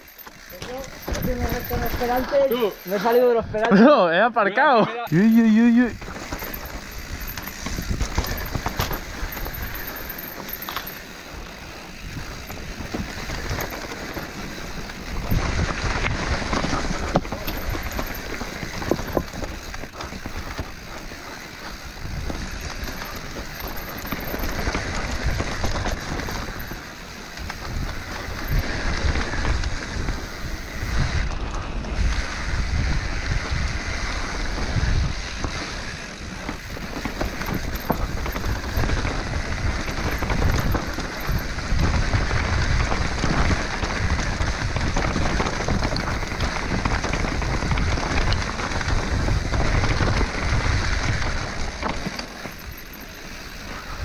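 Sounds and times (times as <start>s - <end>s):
bike knocking and rattling: 0.0s - 3.8s, 5.1s - 54.0s
bike tyres rolling on dirt: 0.0s - 3.8s, 5.1s - 54.0s
wind buffeting microphone: 5.1s - 54.0s.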